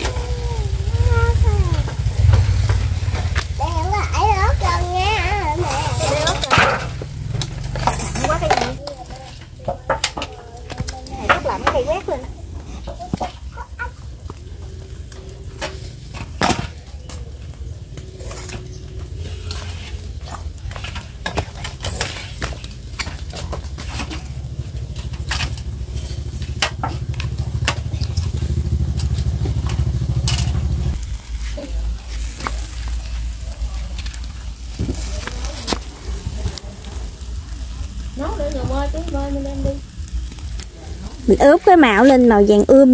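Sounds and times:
low rumble: 0.0 - 10.1, 23.6 - 42.8
meat sizzling on a grill: 0.0 - 42.9.

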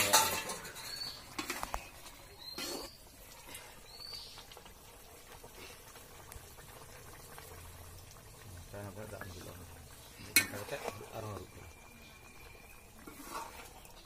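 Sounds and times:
bird chirps: 0.8 - 3.0, 11.2 - 13.0
metal spatula scraping in wok: 13.0 - 14.0.

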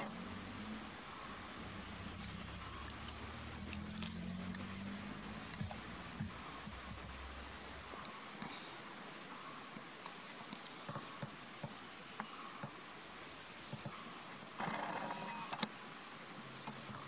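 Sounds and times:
steady forest hiss: 0.0 - 17.0
faint ticks and taps: 5.5 - 7.2, 9.8 - 12.8, 13.6 - 14.0.

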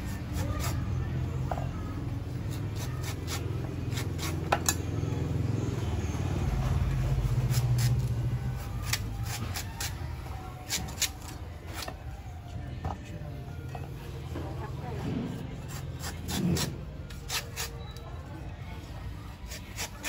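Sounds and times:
cleaver chopping coconut husk: 7.5 - 9.9.

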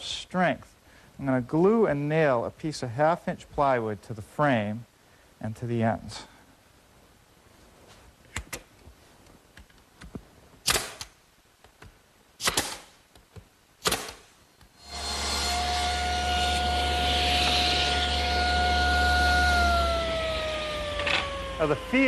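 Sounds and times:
nail gun shots into plywood: 10.6 - 11.2, 12.4 - 13.0, 13.8 - 14.3
machine humming and whining: 14.8 - 22.0.

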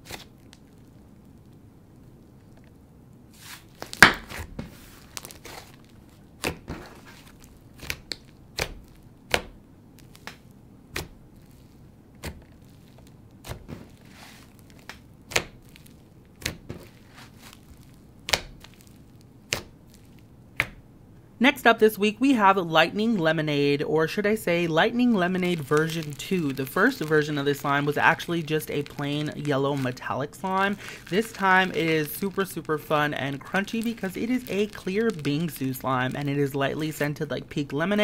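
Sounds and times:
slime popping and crackling: 3.7 - 4.4, 5.0 - 20.8, 24.5 - 38.0.

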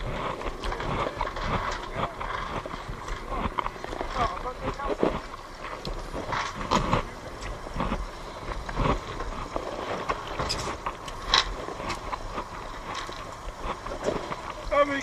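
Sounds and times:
outboard motor rumble: 0.0 - 15.0.

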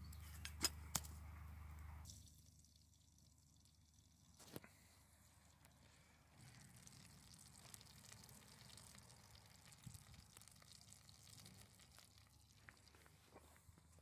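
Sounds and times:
fat sizzling and crackling: 6.4 - 13.3.

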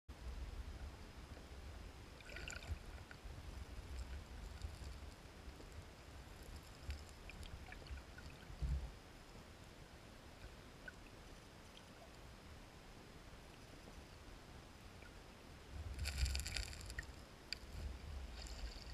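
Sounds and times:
low underwater rumble: 0.2 - 9.0
gravel clicks: 2.6 - 8.8, 15.9 - 18.9.

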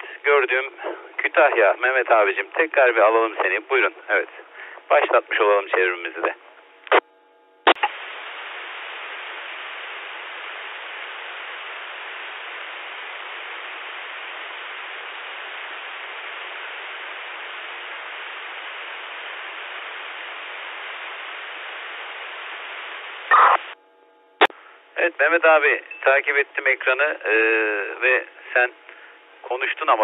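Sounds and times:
radio static hiss: 0.0 - 7.0, 7.6 - 23.8, 24.4 - 30.0
radio click: 1.4 - 1.7, 5.1 - 7.1, 7.7 - 8.0.

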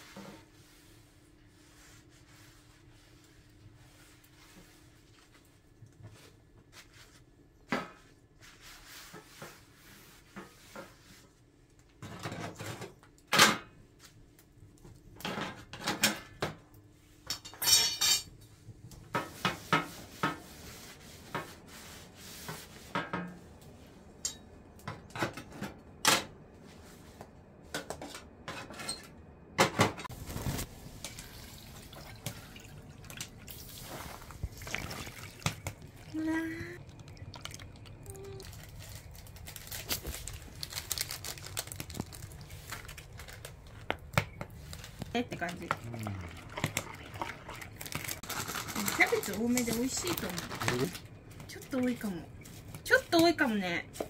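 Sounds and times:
paper towel wiping: 0.5 - 5.3.

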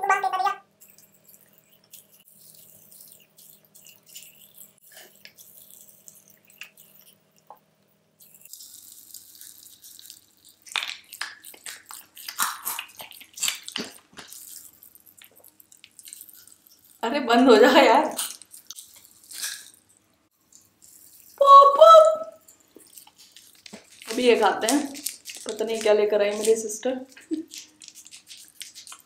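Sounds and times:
wet mouth sounds: 0.0 - 7.6, 8.2 - 17.1, 18.0 - 29.0
popping candy crackling: 8.2 - 17.0, 17.8 - 29.0.

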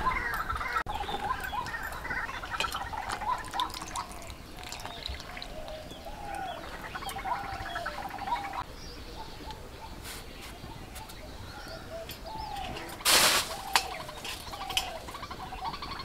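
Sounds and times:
birds calling: 0.0 - 16.0
water splashing in a bowl: 1.6 - 7.3.

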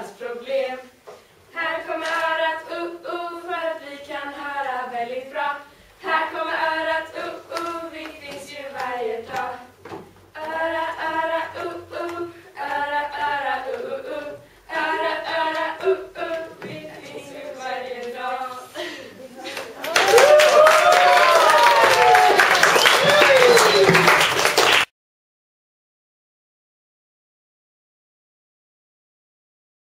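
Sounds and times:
girls singing unaccompanied: 0.0 - 19.9.

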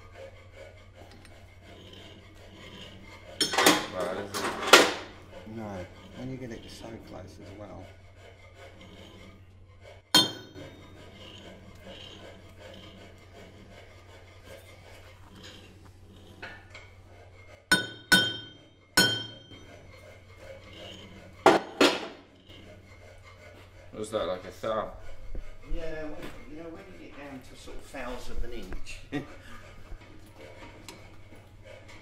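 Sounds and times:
metal-on-metal strikes: 17.7 - 19.3.

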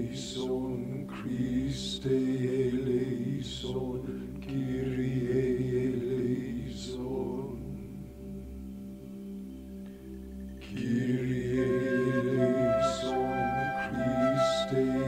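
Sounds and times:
low chant-like drone: 0.0 - 9.4, 10.0 - 15.0
breathy flute notes: 11.6 - 15.0.

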